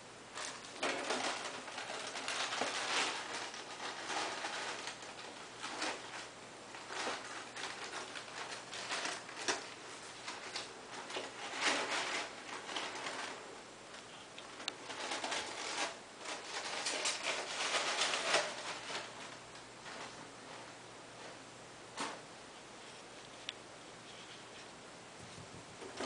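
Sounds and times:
small animals scrabbling: 0.3 - 13.6, 14.5 - 20.7.

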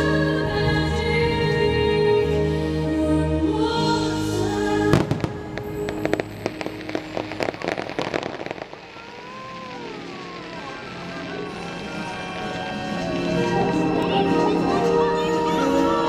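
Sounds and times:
show music: 3.8 - 16.0
firework pops and bangs: 4.9 - 10.8.

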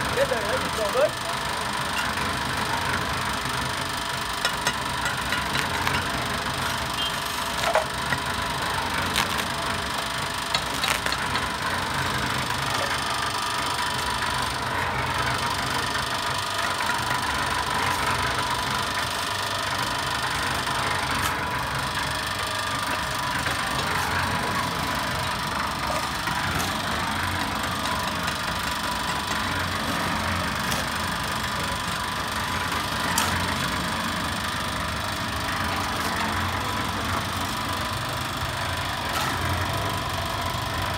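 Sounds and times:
concrete mixer churning: 0.0 - 40.9.

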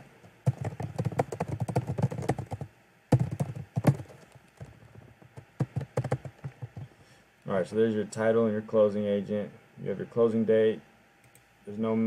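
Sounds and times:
computer keyboard typing: 0.5 - 6.9.

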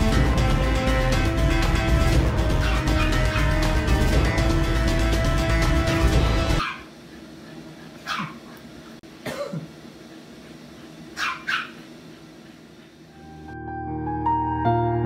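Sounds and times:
dog barking: 2.5 - 3.6, 6.6 - 6.9, 8.0 - 8.6, 11.2 - 11.8.

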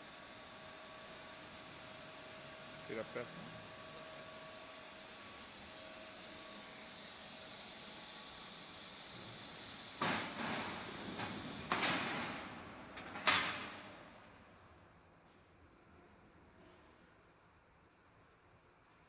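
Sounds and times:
high hiss of air: 0.0 - 11.7.

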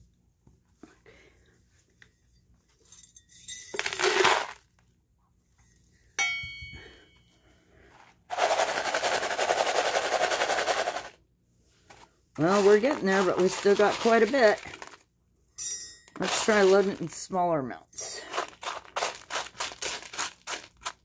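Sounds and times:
ore chips rattling: 3.7 - 4.7, 8.3 - 11.2, 12.4 - 15.0, 16.1 - 17.2, 18.1 - 21.0
gravel pouring into plastic pan: 3.8 - 4.6, 8.3 - 11.2, 12.4 - 15.0, 16.2 - 17.2, 18.2 - 21.0
sharp ringing clink: 6.2 - 7.3, 15.5 - 16.2.

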